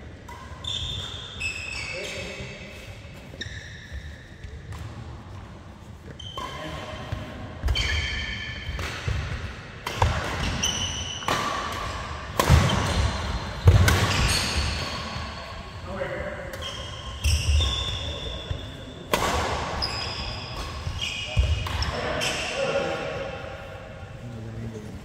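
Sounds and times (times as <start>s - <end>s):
sneakers squeaking on court: 0.3s - 4.9s, 6.0s - 9.4s, 10.0s - 15.7s, 16.5s - 22.6s
racket hitting shuttlecock: 6.1s - 15.3s, 19.1s - 22.2s.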